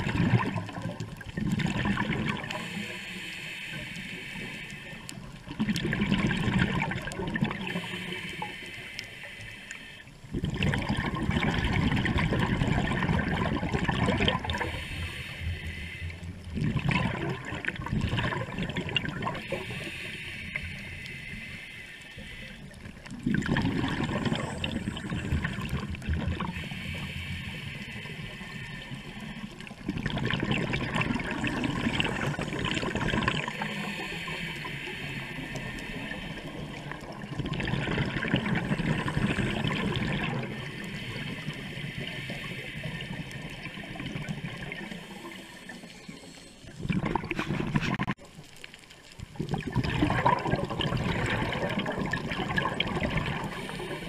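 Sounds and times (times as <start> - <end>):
diver exhaling gurgling bubbles: 0.0 - 3.0, 5.3 - 8.7, 10.2 - 21.6, 22.3 - 48.5, 49.2 - 54.0
diver inhaling through regulator: 2.4 - 5.2, 7.6 - 10.1, 14.3 - 16.4, 19.0 - 25.7, 26.4 - 29.7, 30.9 - 37.2, 38.3 - 47.8, 52.9 - 54.0.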